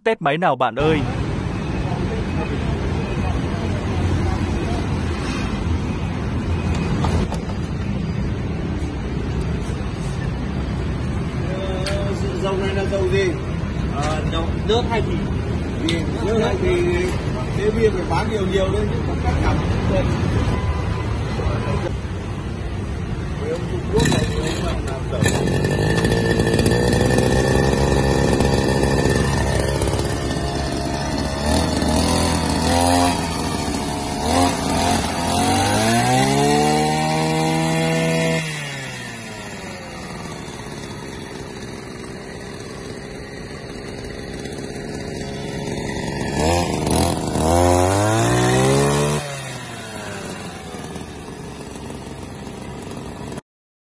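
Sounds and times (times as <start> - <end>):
brush cutter engine revving: 23.4 - 53.4.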